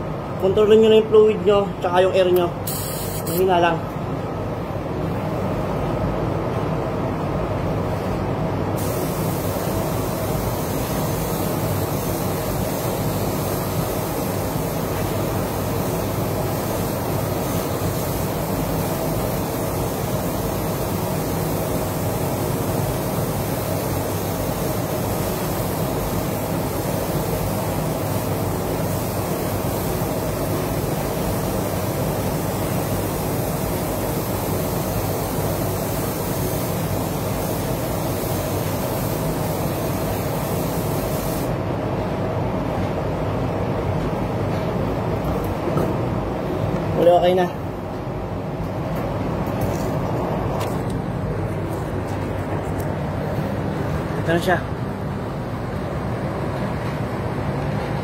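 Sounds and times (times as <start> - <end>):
ventilation rushing: 0.0 - 58.0
spray gun hissing: 2.7 - 3.5, 8.8 - 41.5.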